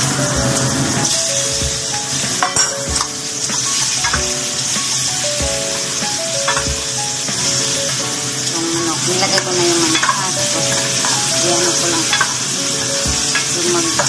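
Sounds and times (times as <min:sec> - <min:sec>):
garlic sizzling in oil: 0:00.1 - 0:14.0
utensil clinking in pan: 0:02.4 - 0:04.2, 0:05.7 - 0:06.7, 0:09.2 - 0:14.0.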